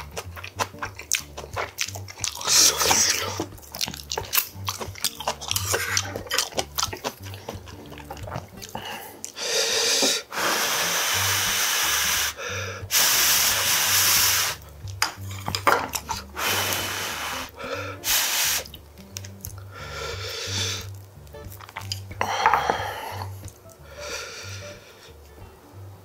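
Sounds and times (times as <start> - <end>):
crisp chewing: 0.0 - 9.4, 14.6 - 23.8
soft background music: 0.0 - 26.0
hissing breaths: 8.6 - 14.6, 16.3 - 18.8, 19.6 - 20.9, 22.2 - 25.2.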